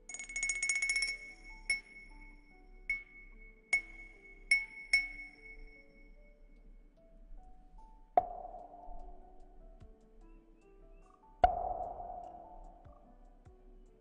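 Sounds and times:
soft low sustained melody: 0:00.0 - 0:14.0
bright glassy chime strikes: 0:00.1 - 0:06.4.

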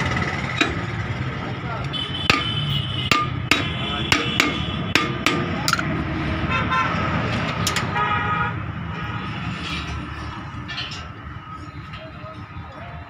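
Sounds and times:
hand tools clinking on metal: 0:00.4 - 0:01.2, 0:02.3 - 0:05.9
vehicle horns honking: 0:01.6 - 0:05.7, 0:06.3 - 0:09.7.

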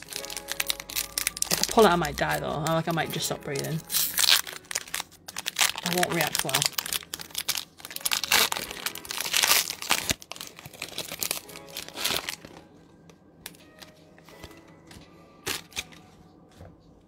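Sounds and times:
foil wrapper crinkling: 0:00.0 - 0:12.7, 0:15.4 - 0:16.0.

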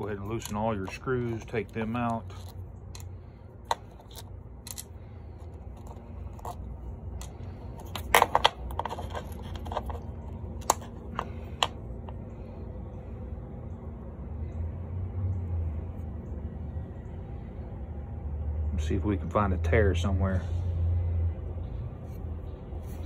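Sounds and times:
small metal parts clinking: 0:00.0 - 0:11.7
low steady hum: 0:00.0 - 0:23.0.

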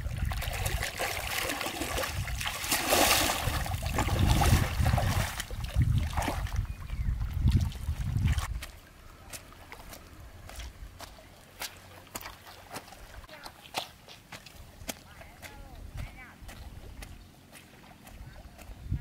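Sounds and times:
wading through shallow water: 0:00.0 - 0:19.0.

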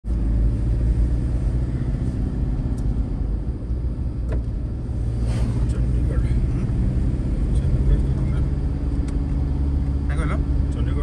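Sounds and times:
car driving on paved road: 0:00.0 - 0:11.0
passing car whoosh: 0:04.7 - 0:09.8.

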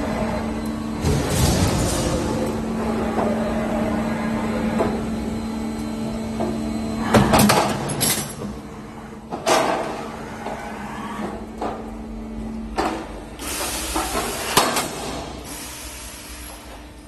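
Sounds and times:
machine motor hum: 0:00.0 - 0:17.0.

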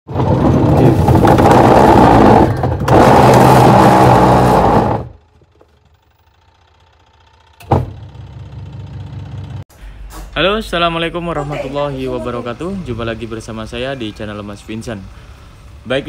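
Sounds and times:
thump: 0:07.6 - 0:08.1.

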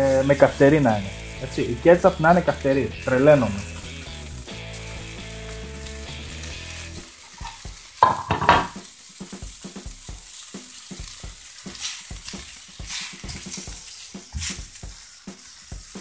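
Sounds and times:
patties sizzling in pan: 0:00.0 - 0:16.0
utensil knocking against pan: 0:07.4 - 0:08.8
ceramic plate clattering down: 0:08.0 - 0:08.8.

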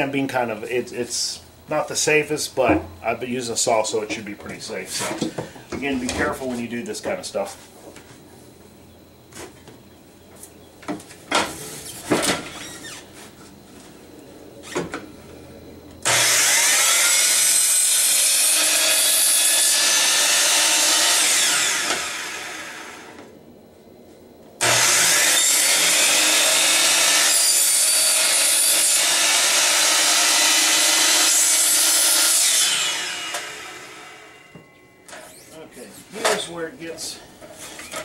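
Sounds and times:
miter saw cutting plastic pipe: 0:16.0 - 0:23.2, 0:24.6 - 0:34.5.

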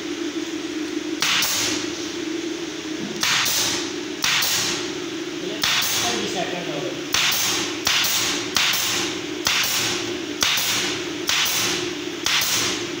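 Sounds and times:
nail gun firing into board: 0:03.2 - 0:04.8, 0:07.1 - 0:12.8.

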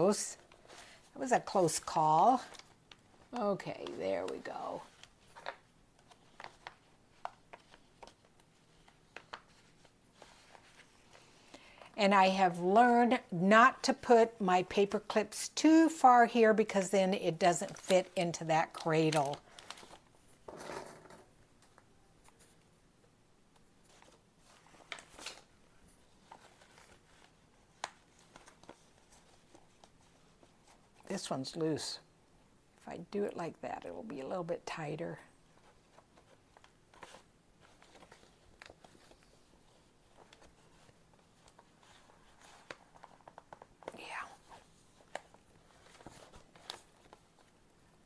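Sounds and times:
paper pages rustling: 0:00.0 - 0:12.8, 0:16.3 - 0:20.4, 0:23.8 - 0:31.1, 0:35.5 - 0:48.0.

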